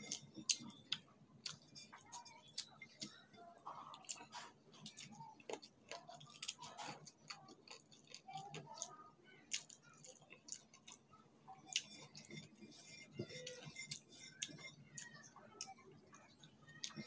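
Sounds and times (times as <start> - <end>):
chewing and lip smacks: 0.0 - 12.4.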